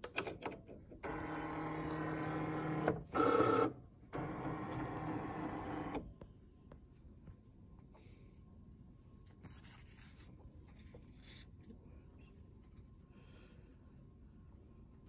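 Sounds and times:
cutting machine motors whirring: 0:01.0 - 0:06.0.

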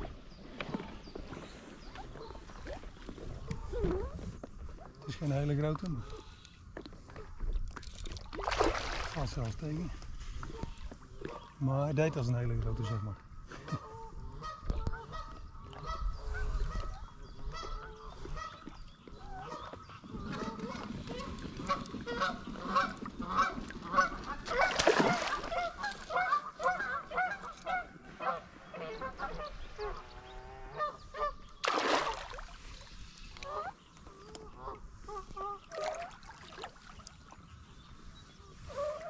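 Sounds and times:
geese honking: 0:20.3 - 0:31.4.

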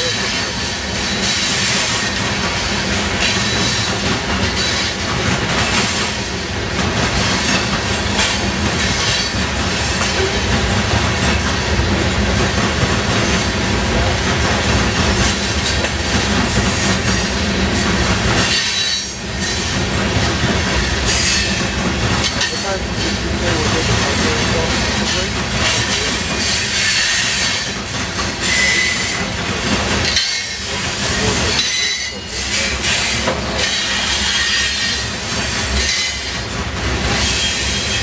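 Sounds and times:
train wheels rumbling on rails: 0:00.0 - 0:38.0
thin wheel squeal: 0:28.4 - 0:29.2.

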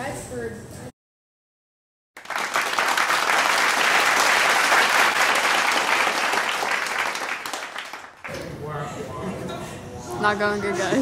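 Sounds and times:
group applauding: 0:02.2 - 0:08.5.

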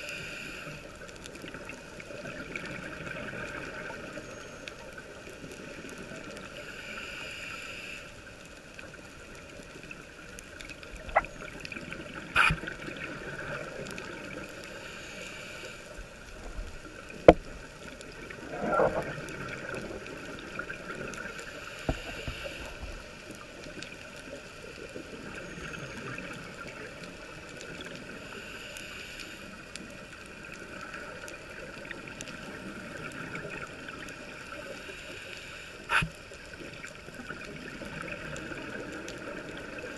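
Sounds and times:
regulator breathing hiss: 0:00.0 - 0:00.9, 0:06.6 - 0:08.2, 0:14.6 - 0:16.0, 0:21.3 - 0:23.0, 0:28.2 - 0:29.6, 0:34.6 - 0:36.2
gurgling exhaled bubbles: 0:10.9 - 0:14.5, 0:16.4 - 0:21.3, 0:35.9 - 0:39.9.

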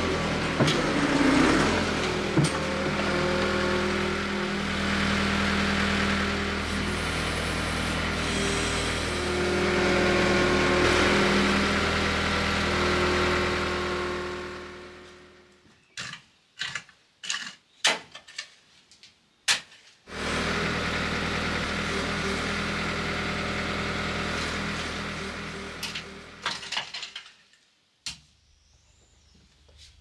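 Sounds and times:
diesel engine running: 0:00.0 - 0:15.5, 0:20.1 - 0:26.4.

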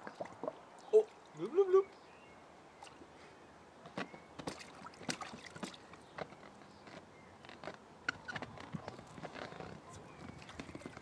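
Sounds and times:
water splashing in paddling pool: 0:04.4 - 0:06.0.

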